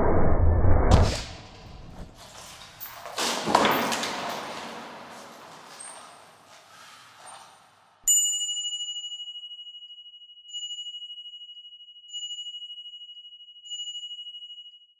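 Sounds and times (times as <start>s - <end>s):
high clear chime: 8.1s - 14.9s.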